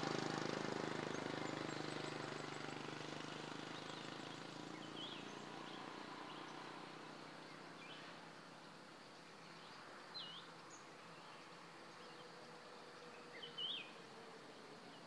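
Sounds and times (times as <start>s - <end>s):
vehicle engine hum: 0.0s - 8.9s.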